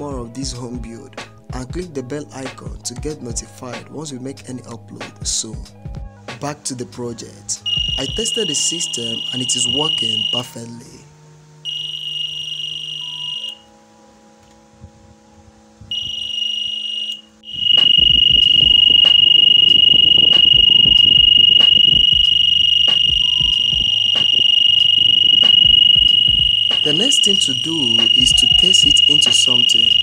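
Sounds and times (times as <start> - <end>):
shrill alarm buzzer tone: 7.7 - 10.6, 11.6 - 13.7, 15.9 - 30.0.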